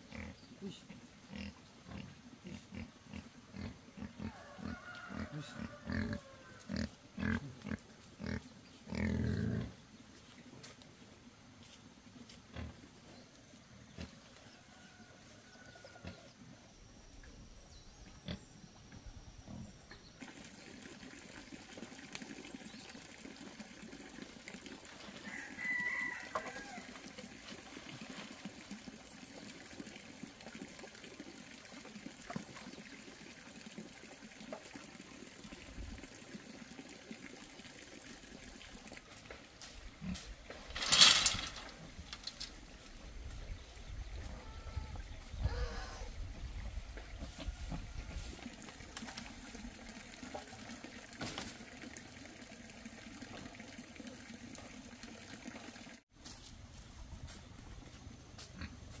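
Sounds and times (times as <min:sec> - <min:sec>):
rooster crowing: 0:04.2 - 0:06.7, 0:25.2 - 0:27.0.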